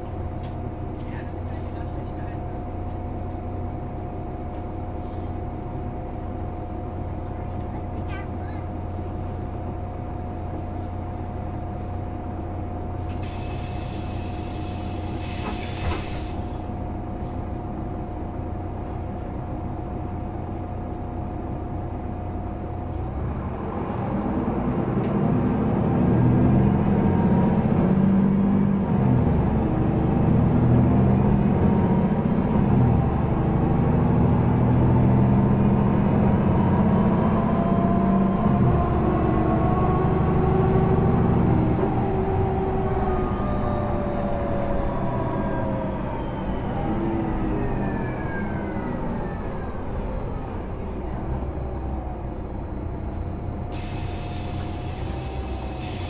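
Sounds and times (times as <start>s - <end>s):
bus engine idling: 0.0s - 56.0s
bus engine revving with whines: 19.2s - 56.0s.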